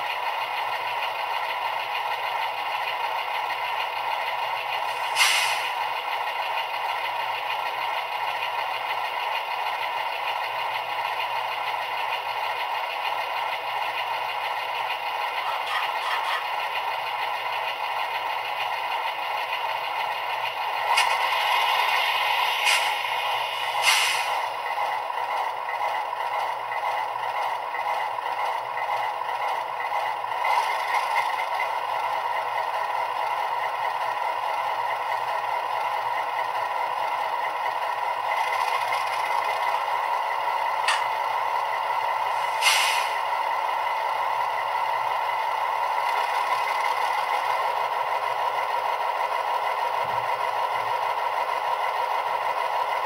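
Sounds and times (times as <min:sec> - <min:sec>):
diesel engine idling drone: 0:00.0 - 0:53.0
hiss of air: 0:04.9 - 0:05.8, 0:21.4 - 0:24.5, 0:42.4 - 0:43.2.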